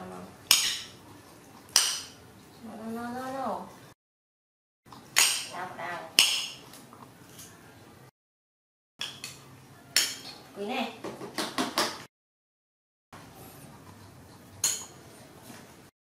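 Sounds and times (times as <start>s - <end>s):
metal spoon clinking on plate: 10.0s - 10.4s, 14.6s - 15.0s.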